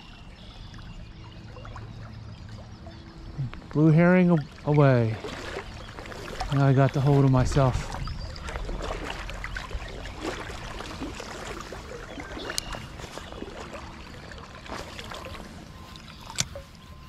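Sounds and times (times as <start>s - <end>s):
creek water running and splashing: 0.0s - 17.0s.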